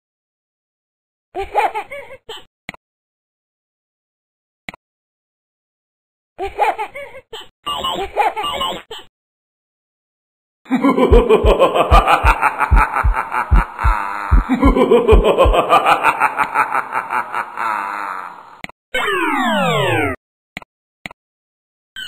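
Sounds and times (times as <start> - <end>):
cartoon snickering laughter: 10.7 - 18.4
rhythmic low thumps: 11.0 - 15.8.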